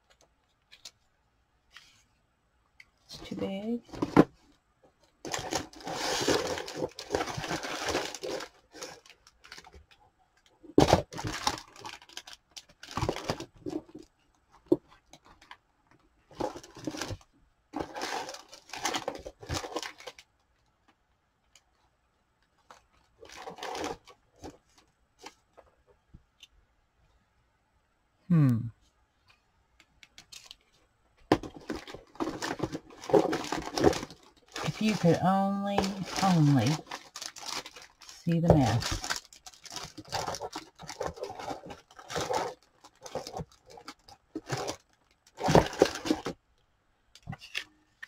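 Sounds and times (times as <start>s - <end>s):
rubber stamps rustling and clattering: 3.8s - 21.8s, 29.3s - 34.8s, 35.8s - 46.4s.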